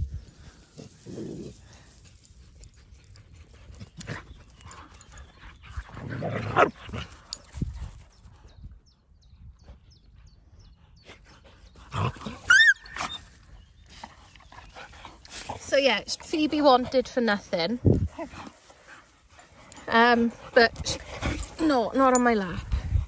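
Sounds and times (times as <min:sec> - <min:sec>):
dog yelping: 0:12.5 - 0:13.3.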